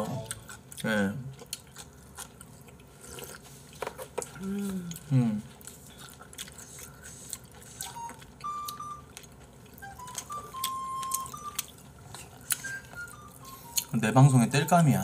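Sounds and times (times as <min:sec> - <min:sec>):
eating noises: 0:00.0 - 0:14.0
simple melody of single notes: 0:09.8 - 0:11.7.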